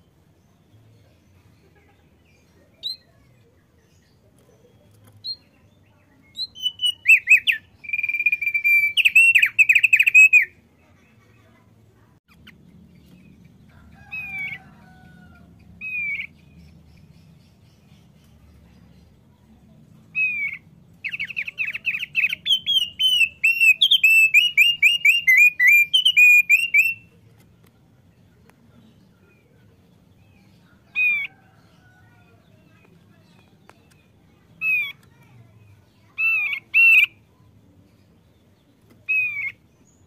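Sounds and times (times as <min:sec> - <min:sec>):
bird singing whistled notes: 0:02.7 - 0:03.2, 0:06.2 - 0:10.6, 0:15.8 - 0:17.9, 0:20.2 - 0:27.1.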